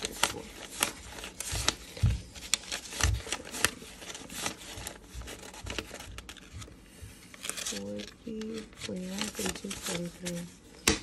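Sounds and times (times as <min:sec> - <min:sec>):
paper bills rustling and snapping: 0:00.0 - 0:11.0.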